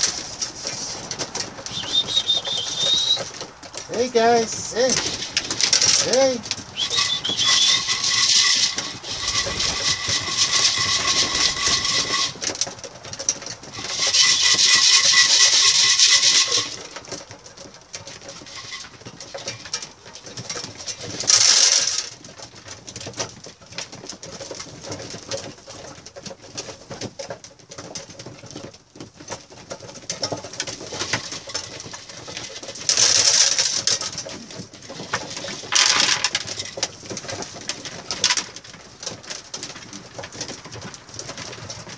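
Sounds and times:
loud rustling bursts: 0:00.0 - 0:26.8, 0:29.5 - 0:41.9
pigeons cooing: 0:00.7 - 0:03.8, 0:06.6 - 0:12.0.

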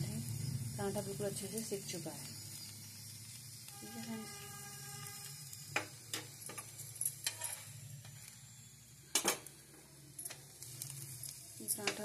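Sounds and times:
faint frying sizzle: 0:00.0 - 0:12.0
steel spoon clicking on griddle: 0:05.7 - 0:07.7, 0:10.2 - 0:12.0.

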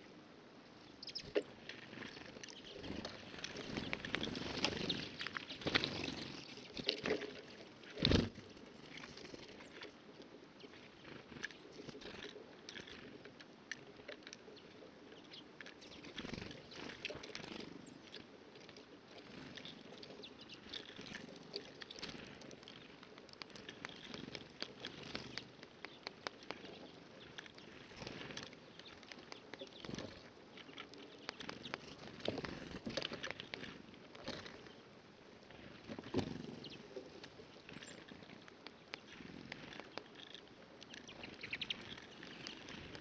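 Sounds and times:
birds tapping on feeder: 0:01.0 - 0:07.2, 0:13.9 - 0:18.3, 0:19.2 - 0:34.8, 0:35.7 - 0:43.0.

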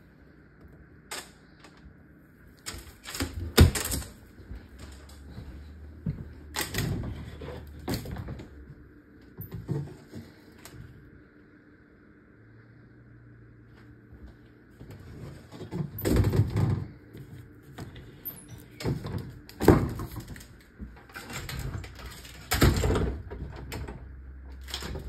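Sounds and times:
closet doors knocking and rattling: 0:22.5 - 0:24.1.

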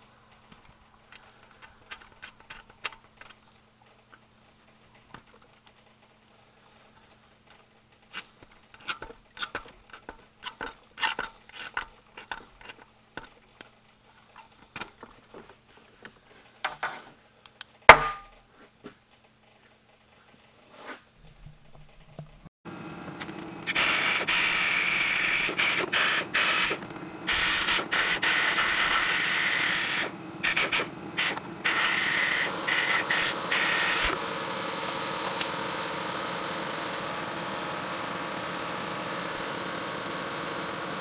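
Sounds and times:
steady motor hum: 0:22.7 - 0:41.0
compressed air hissing in bursts: 0:23.7 - 0:34.2.

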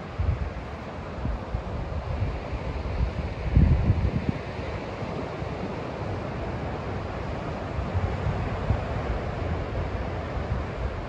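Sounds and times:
wind buffeting microphone: 0:00.0 - 0:04.6.

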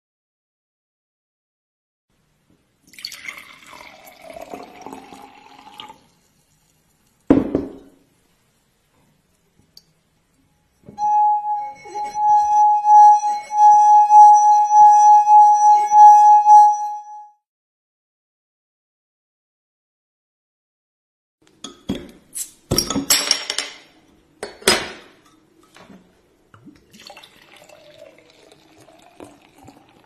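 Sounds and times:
water pouring into a glass: 0:02.9 - 0:06.8, 0:26.6 - 0:30.0
knock: 0:07.3 - 0:08.0
singing glass rim ringing: 0:11.0 - 0:17.2.

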